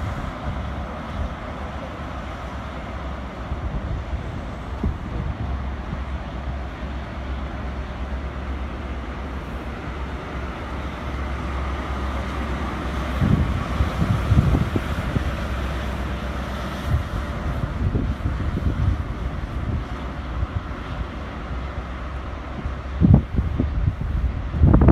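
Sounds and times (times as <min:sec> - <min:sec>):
diesel train running: 0:00.0 - 0:24.9
wind on microphone: 0:03.4 - 0:07.0, 0:12.8 - 0:16.0, 0:16.7 - 0:24.9.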